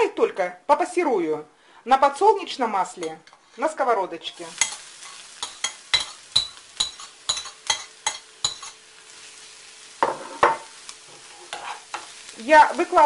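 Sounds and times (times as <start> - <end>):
oil sizzling in frying pan: 2.8 - 13.0.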